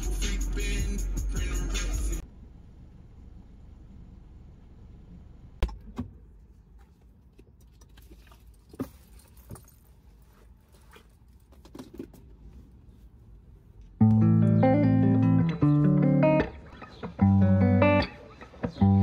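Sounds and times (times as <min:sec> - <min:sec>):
low steady rumble: 0:00.0 - 0:09.0.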